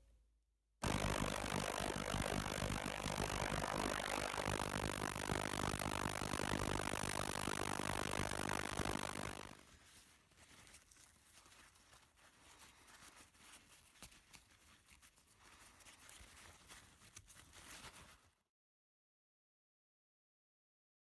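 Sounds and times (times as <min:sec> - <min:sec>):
small ticks: 0:00.8 - 0:09.6
ultrasonic cleaner buzzing: 0:00.8 - 0:09.6
paper towel rustling: 0:09.6 - 0:18.4.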